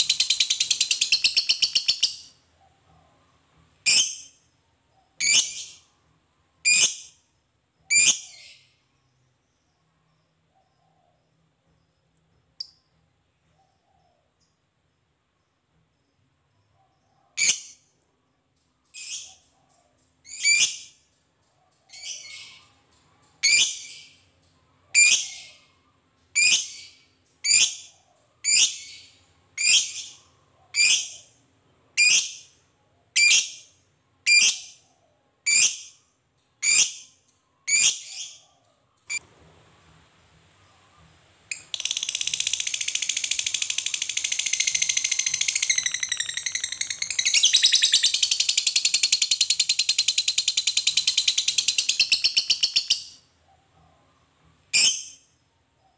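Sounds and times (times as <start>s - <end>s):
bird rapid chattering trill: 0.0s - 2.3s, 41.5s - 53.2s.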